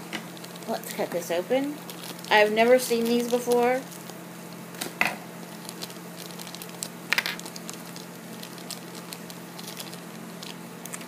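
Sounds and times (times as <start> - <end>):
steady low hum: 0.0 - 11.0
plastic bag crinkling: 0.1 - 11.0
sharp plastic crackles: 0.1 - 11.0.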